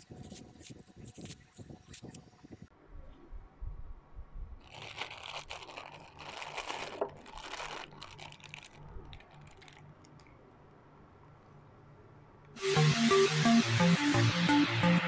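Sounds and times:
plastic bag crinkling: 4.6 - 10.3.

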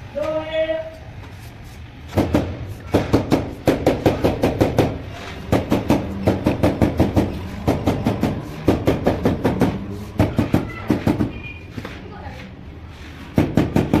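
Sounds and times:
sharp knocks on marble stair tread: 2.1 - 11.3.

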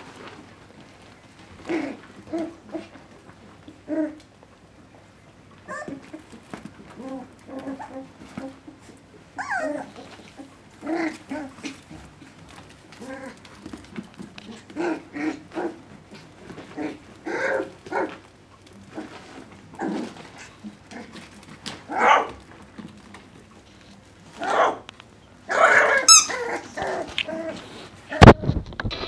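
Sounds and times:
puppies barking and growling: 1.3 - 4.4, 5.5 - 28.3
puppies yelping: 7.0 - 11.9, 25.5 - 27.6.

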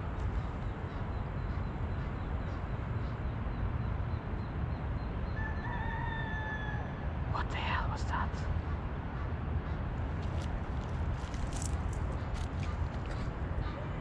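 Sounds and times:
low outdoor rumble: 5.2 - 14.0.

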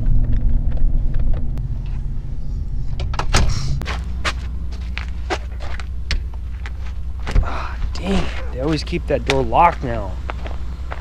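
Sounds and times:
truck engine idling: 0.0 - 11.0
vehicle door opening and shutting: 2.9 - 4.3.

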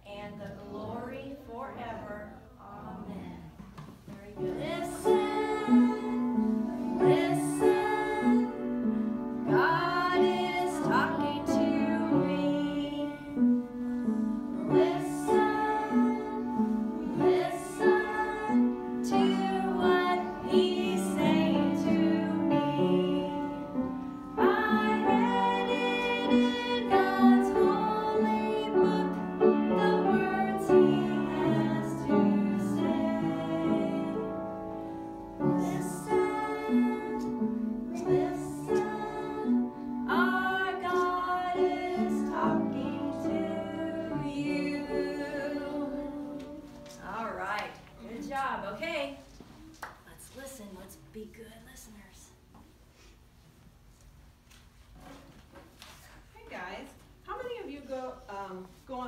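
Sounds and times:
woman singing: 4.3 - 8.8, 9.5 - 23.8, 24.4 - 34.4, 35.4 - 46.4.

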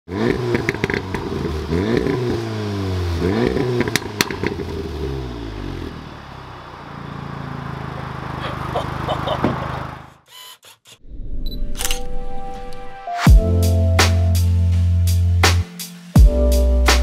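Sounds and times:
car engine revving: 0.1 - 10.3
exhaust pops: 3.7 - 4.7
car engine idling: 3.8 - 10.2.

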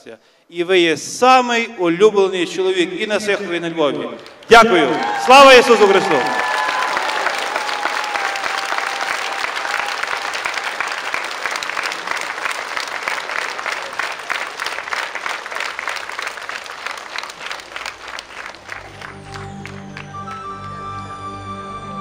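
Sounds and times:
crowd applauding: 4.2 - 21.1.

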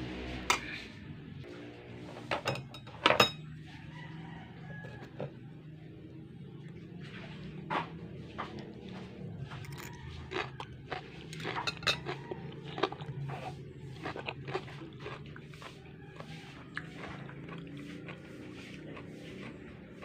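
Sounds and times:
fork clinking on ceramic plate: 2.4 - 3.5, 11.5 - 12.2.

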